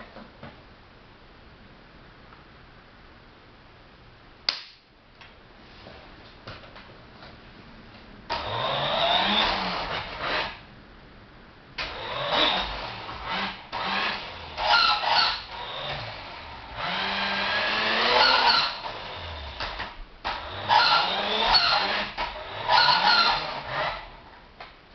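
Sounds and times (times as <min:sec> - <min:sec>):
toy car motor and gears whining: 0:08.3 - 0:10.6, 0:11.9 - 0:24.2.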